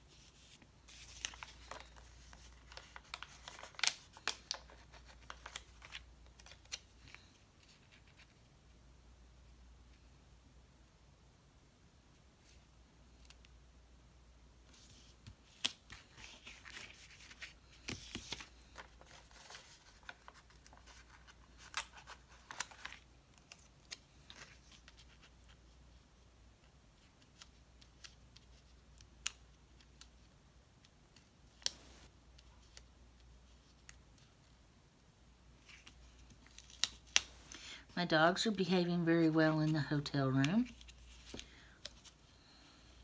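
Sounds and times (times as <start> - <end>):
sticker paper clicks and rustles: 0.9 - 8.4.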